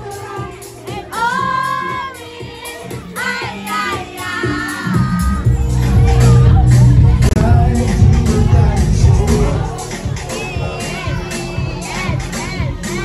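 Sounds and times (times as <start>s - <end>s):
heavy bass beat: 2.8s - 13.0s.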